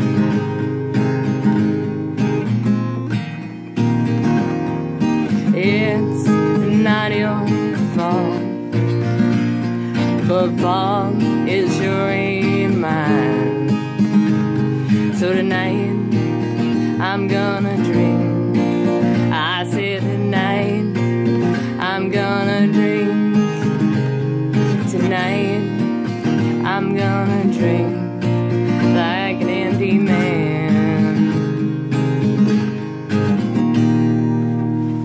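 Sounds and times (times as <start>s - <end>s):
strummed acoustic guitar: 0.0s - 35.0s
woman singing with vibrato: 5.2s - 31.8s.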